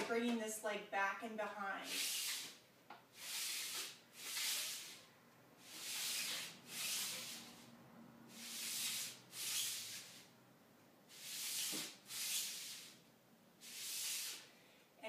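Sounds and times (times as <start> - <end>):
slider swishing across tile floor: 3.2 - 7.7, 8.3 - 10.3, 11.1 - 13.0.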